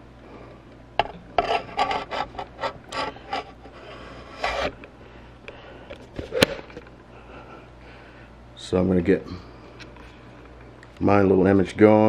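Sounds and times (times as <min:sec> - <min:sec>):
handling scrapes and rubs: 0:01.4 - 0:04.8.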